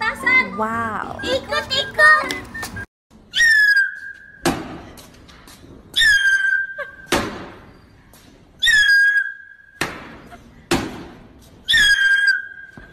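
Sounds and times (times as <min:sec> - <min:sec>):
firecracker whistling: 0:02.4 - 0:04.4, 0:08.6 - 0:10.3, 0:11.6 - 0:12.9.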